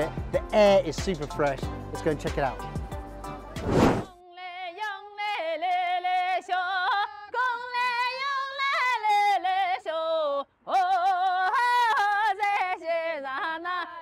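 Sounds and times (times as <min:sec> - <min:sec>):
woman singing folk song: 0:04.2 - 0:14.0.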